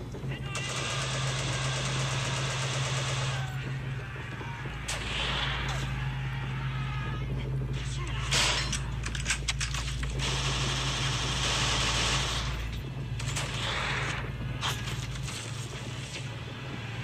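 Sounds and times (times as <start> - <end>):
rapid automatic gunfire: 0.0 - 7.8, 9.8 - 16.0
steady low rumble: 0.0 - 17.0
sharp gunshots: 0.4 - 6.0.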